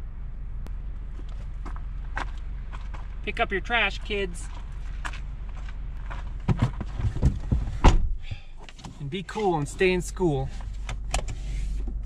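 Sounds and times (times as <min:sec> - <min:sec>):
low steady hum: 0:00.0 - 0:12.0
footsteps on dirt: 0:01.0 - 0:07.7
thumps of person climbing into car: 0:06.0 - 0:08.5.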